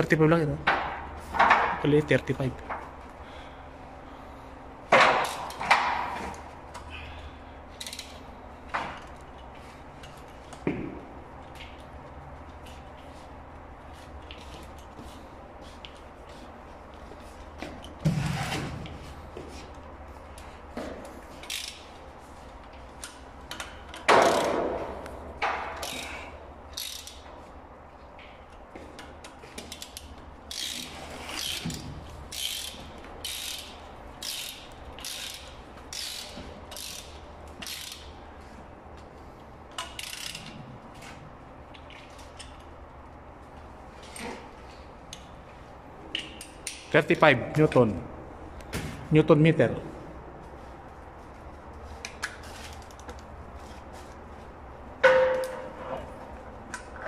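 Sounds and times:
ratchet wrench clicking: 0:07.8 - 0:08.2, 0:21.4 - 0:21.9, 0:25.8 - 0:27.3, 0:29.6 - 0:38.1, 0:39.8 - 0:40.6.

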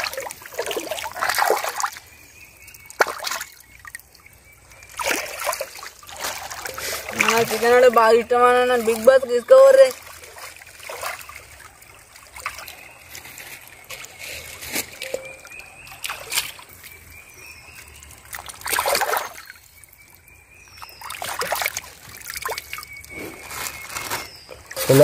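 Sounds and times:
meat splashing in stream water: 0:00.0 - 0:02.1, 0:02.8 - 0:04.0, 0:04.8 - 0:08.0, 0:08.7 - 0:13.9, 0:18.0 - 0:19.6, 0:20.8 - 0:25.0.

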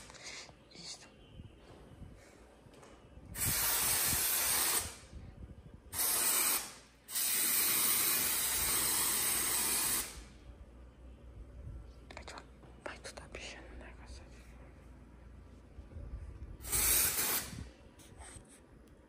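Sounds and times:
aerosol spray can hissing: 0:03.4 - 0:05.0, 0:06.0 - 0:10.2, 0:16.6 - 0:17.6.

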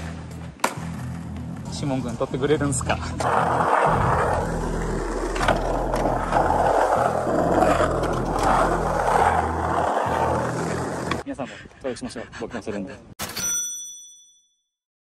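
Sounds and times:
skateboard wheels rolling: 0:00.0 - 0:11.2.

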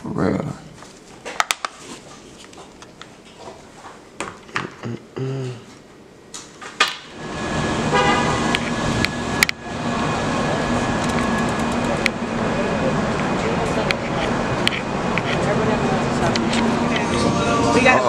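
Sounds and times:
city street traffic: 0:07.1 - 0:18.0
car horn honk: 0:07.9 - 0:08.6.

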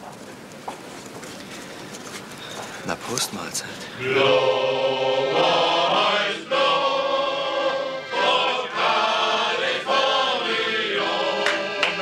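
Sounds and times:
male choir singing: 0:03.9 - 0:12.0
accordion: 0:04.0 - 0:12.0.

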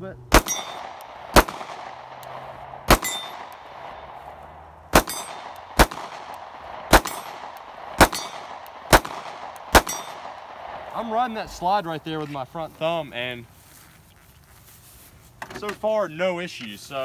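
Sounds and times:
pistol shots: 0:00.3 - 0:11.3
metallic ring: 0:00.4 - 0:00.9, 0:03.0 - 0:03.5, 0:05.1 - 0:05.4, 0:09.8 - 0:10.2.

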